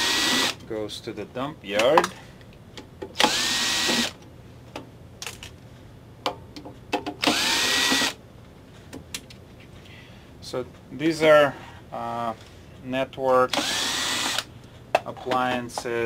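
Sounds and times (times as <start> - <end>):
cordless drill motor whine: 0.0 - 0.6, 3.2 - 4.2, 7.2 - 8.2, 13.6 - 14.5.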